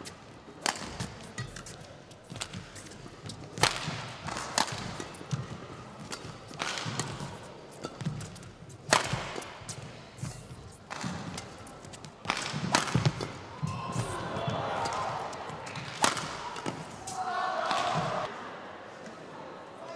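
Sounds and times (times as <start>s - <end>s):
rackets striking shuttlecock: 0.0s - 18.2s.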